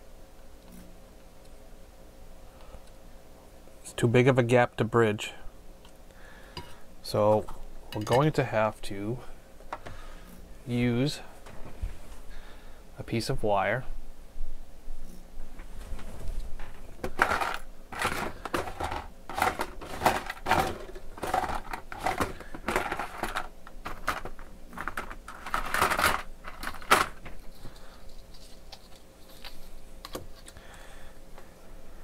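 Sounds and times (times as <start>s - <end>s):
small tools rummaged by hand: 16.6s - 30.6s.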